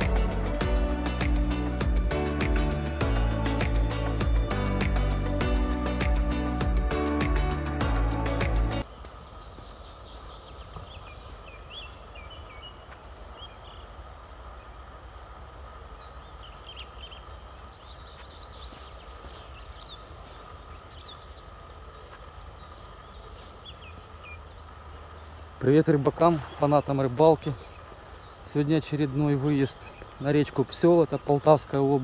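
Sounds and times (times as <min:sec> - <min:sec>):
music: 0:00.0 - 0:08.8
songbirds chirping: 0:00.0 - 0:32.0.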